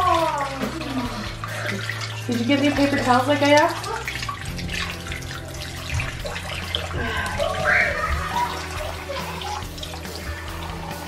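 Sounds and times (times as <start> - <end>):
sink tap running: 0.0 - 11.0
water splashing on face: 0.0 - 11.0
child whimpering: 7.0 - 9.7.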